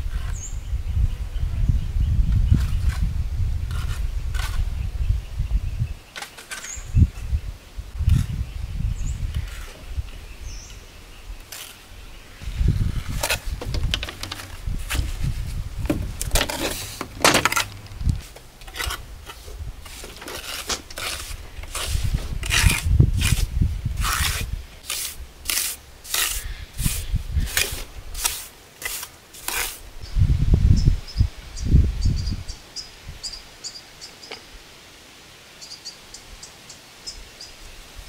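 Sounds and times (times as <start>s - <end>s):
trowel scraping mortar on stone: 11.4s - 11.9s, 14.2s - 29.8s.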